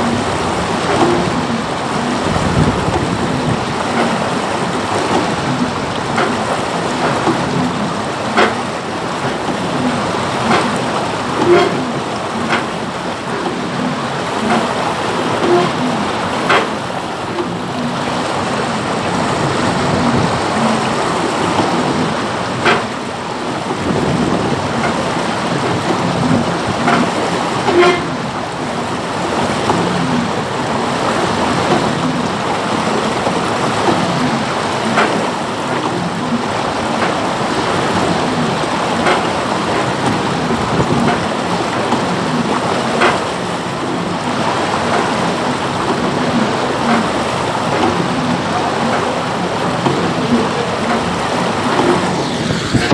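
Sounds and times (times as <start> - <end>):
water rushing against a hull: 0.0 - 52.9
sharp knocks: 16.4 - 16.8.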